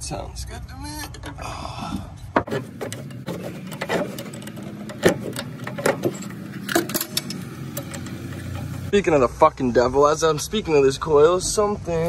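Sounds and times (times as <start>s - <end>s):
metal clicks and knocks: 1.1s - 1.4s, 2.3s - 8.9s.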